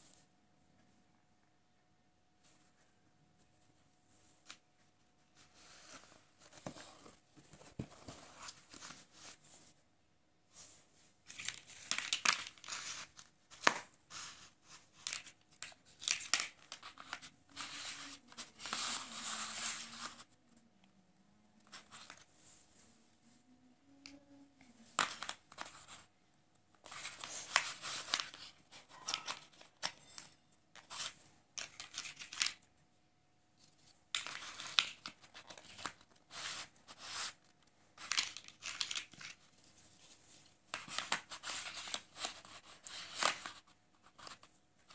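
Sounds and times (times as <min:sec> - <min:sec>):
paper rustling and scraping: 0:10.6 - 0:20.3, 0:26.8 - 0:32.6, 0:34.1 - 0:44.9.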